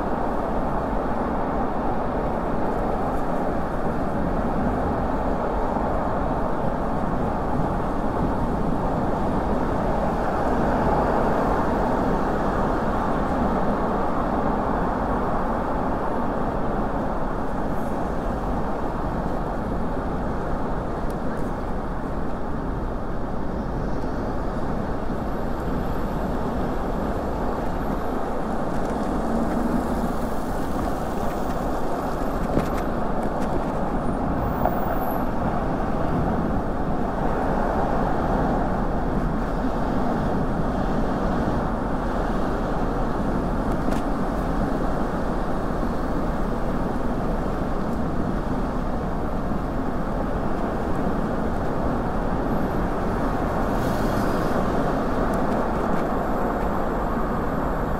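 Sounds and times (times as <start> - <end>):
car traffic on wet street: 0.0 - 57.9.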